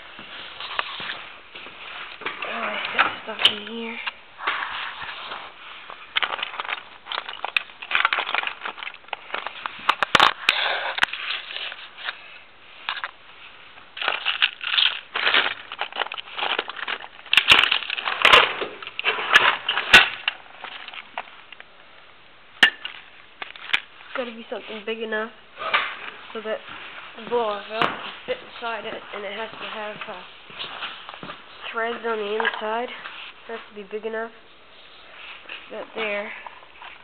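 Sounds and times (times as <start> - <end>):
metal parts clattering in toolbox: 6.2 - 9.5.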